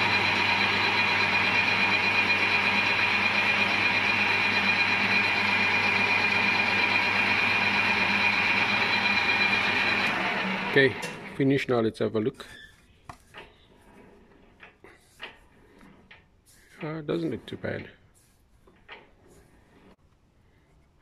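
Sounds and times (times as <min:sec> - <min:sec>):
metal lathe machining: 0:00.0 - 0:11.4.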